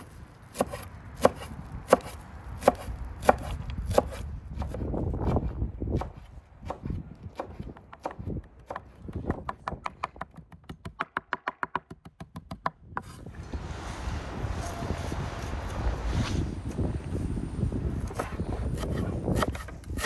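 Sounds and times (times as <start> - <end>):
cleaver chopping on wooden board: 0.5 - 12.7
steady rushing noise: 13.2 - 18.8.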